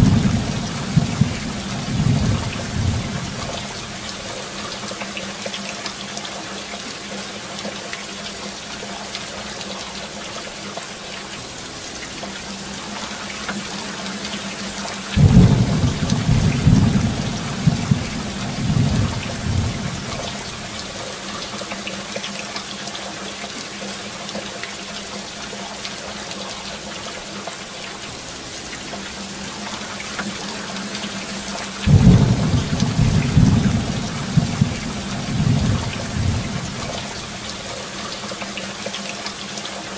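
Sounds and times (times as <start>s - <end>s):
thunder rumbling: 0.0s - 4.1s, 15.2s - 21.0s, 31.9s - 37.6s
heavy rain: 0.0s - 39.9s.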